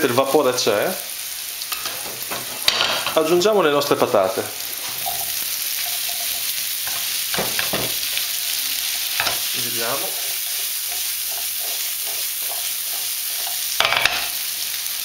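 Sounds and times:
vegetables sizzling in oil: 0.0 - 15.0
food knocking against pan: 7.3 - 8.1.

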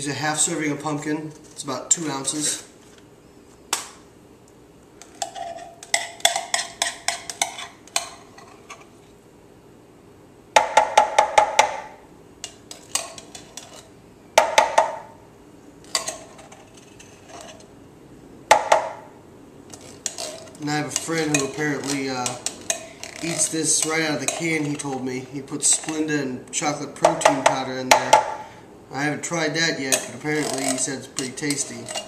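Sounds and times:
metal spoon scraping tin can: 12.7 - 13.9, 19.7 - 26.1, 29.8 - 32.0.

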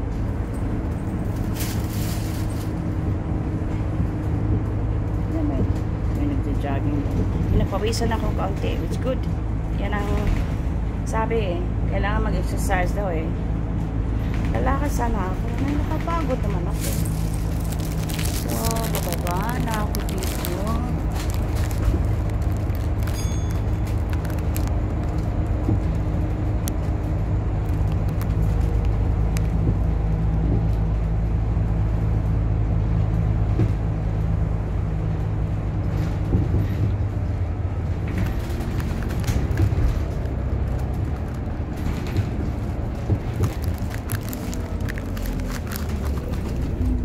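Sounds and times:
bus engine drone: 0.0 - 47.0
road noise: 0.0 - 47.0
clicks and rattles: 15.5 - 25.9, 38.0 - 47.0.

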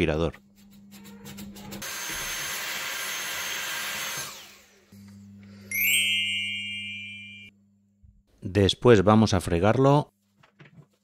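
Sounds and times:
vacuum cleaner running: 1.8 - 5.8.

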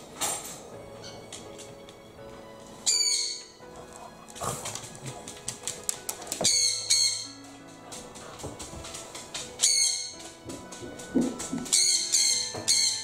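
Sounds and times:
light background music: 0.0 - 13.0
parrot screeching: 2.8 - 3.5, 6.5 - 7.3.

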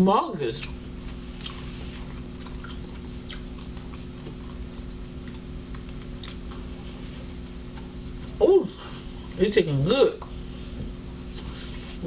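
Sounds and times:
steady low hum: 0.0 - 12.0
mouth chewing clicks and smacks: 1.4 - 6.7, 7.7 - 8.3.

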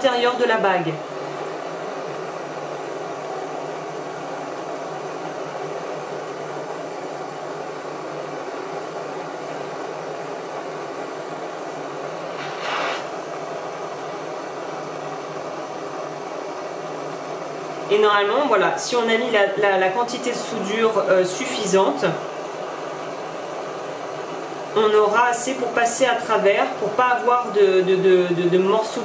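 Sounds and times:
soldering torch hissing: 11.5 - 13.4.

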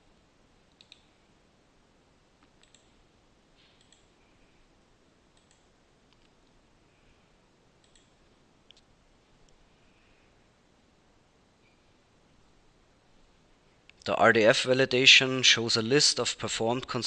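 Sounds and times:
low hiss: 0.0 - 17.0
computer mouse clicks: 0.7 - 1.1, 2.4 - 3.0, 3.6 - 4.1, 5.3 - 6.6, 7.8 - 8.9.

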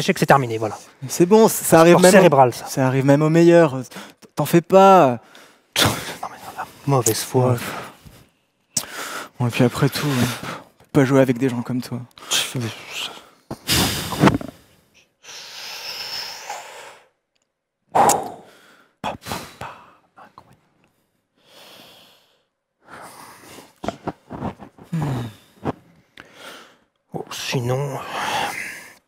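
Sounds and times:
man huffing and sighing: 23.6 - 26.4.

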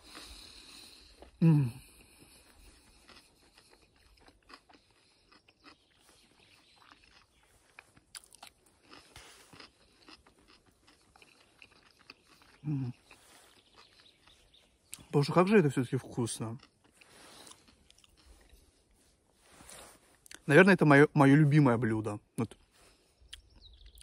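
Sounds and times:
man crunching cucumber: 0.0 - 19.0.

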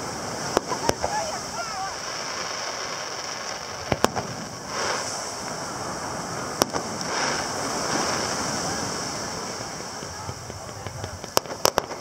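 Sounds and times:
ocean surf: 0.0 - 12.0
distant firework bang: 3.8 - 5.2.

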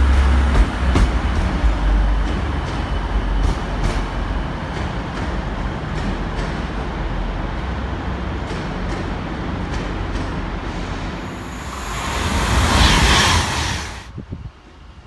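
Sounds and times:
train rumbling: 0.0 - 15.0
loud hiss: 11.2 - 14.1.

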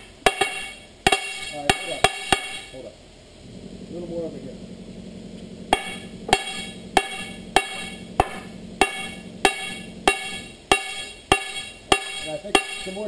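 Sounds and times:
hammer striking steel wheel: 5.7 - 13.0.

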